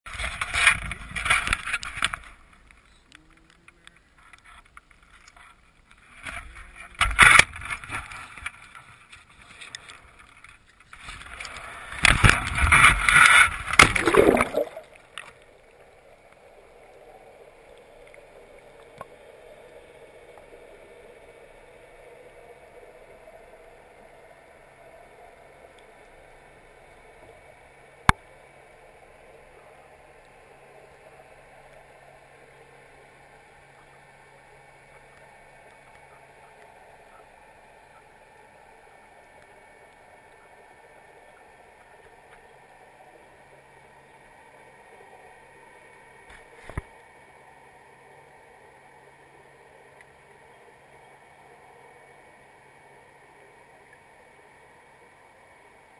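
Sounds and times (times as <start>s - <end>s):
faint underwater hiss: 6.0s - 55.9s
water rushing and splashing: 11.2s - 15.5s.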